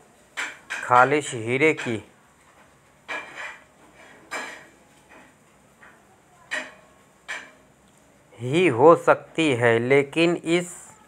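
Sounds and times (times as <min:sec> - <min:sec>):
household clinks and knocks: 0:00.3 - 0:07.6.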